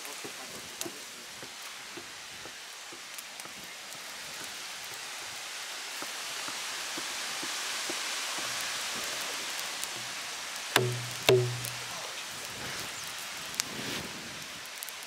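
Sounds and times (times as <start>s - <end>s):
steady hiss: 0.0s - 15.0s
hand drum slap and ringing: 10.8s - 11.9s.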